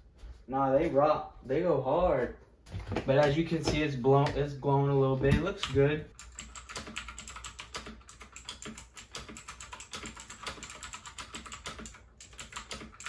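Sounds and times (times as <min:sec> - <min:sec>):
fast typing on keyboard: 0:05.4 - 0:13.0.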